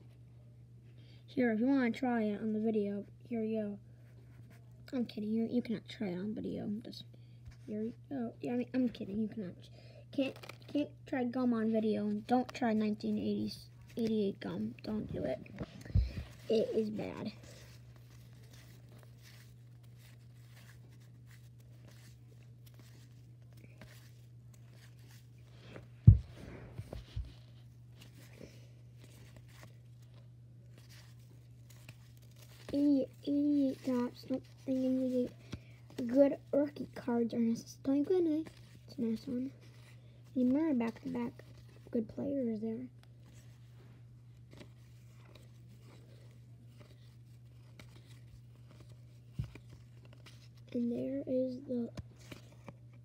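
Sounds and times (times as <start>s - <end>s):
steady low hum: 0.0s - 53.0s
cards being shuffled: 10.2s - 51.0s, 51.7s - 53.0s.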